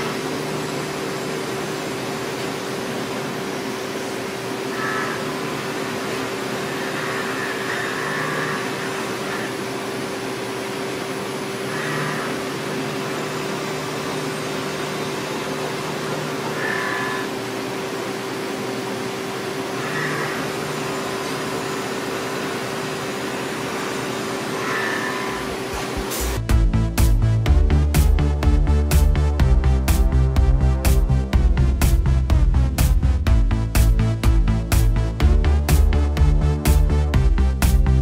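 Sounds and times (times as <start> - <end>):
cnc machining hum: 0.0 - 26.4.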